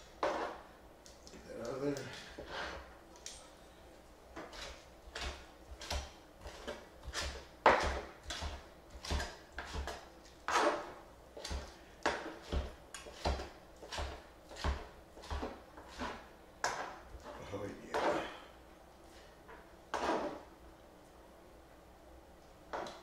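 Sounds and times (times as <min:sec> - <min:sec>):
knife chopping on plastic board: 0:04.4 - 0:10.8, 0:11.4 - 0:17.0.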